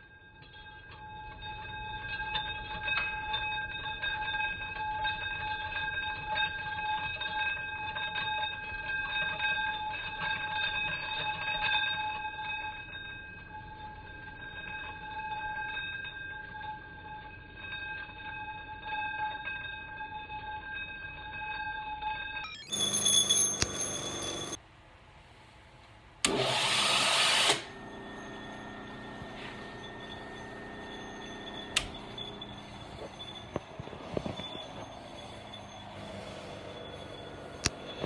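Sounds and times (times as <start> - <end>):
electric motor whine: 26.3 - 38.0
low motor hum: 27.6 - 38.0.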